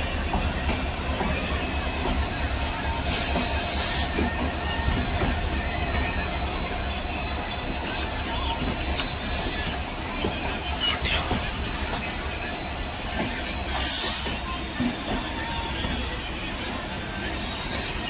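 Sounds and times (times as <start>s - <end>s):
high-pitched wheel squeal: 0.0s - 13.3s.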